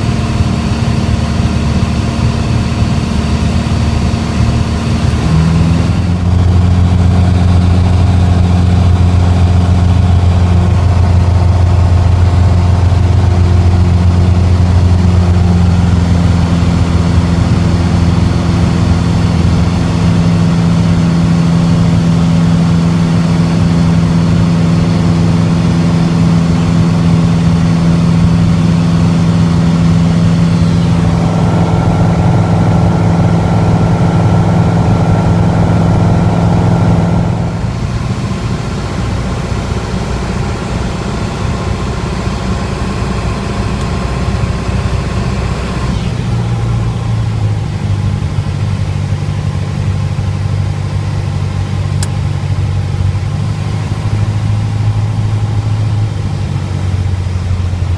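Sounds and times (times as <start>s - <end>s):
propeller engine droning in cabin: 0.0s - 57.9s.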